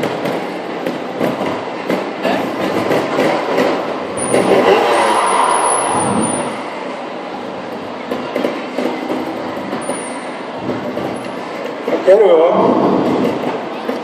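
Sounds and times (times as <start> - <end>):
murmur of crowd: 0.0 - 14.0
motorcycle engine revving: 4.2 - 6.6.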